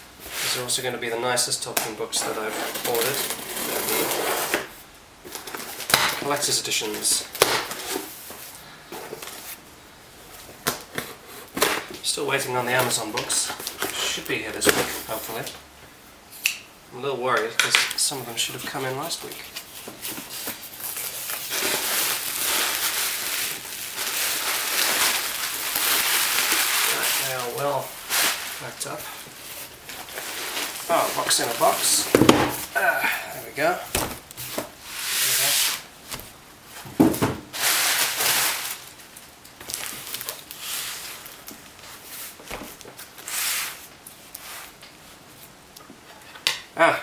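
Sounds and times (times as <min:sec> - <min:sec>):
bubble wrap crinkling: 0:02.2 - 0:09.6, 0:18.3 - 0:36.8, 0:37.5 - 0:45.6
cardboard flaps rustling: 0:18.7 - 0:32.8, 0:33.7 - 0:38.9.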